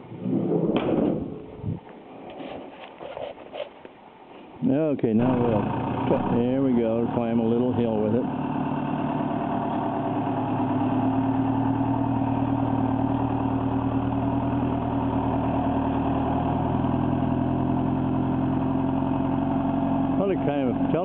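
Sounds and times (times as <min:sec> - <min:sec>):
diesel truck engine under load: 0:05.1 - 0:21.0.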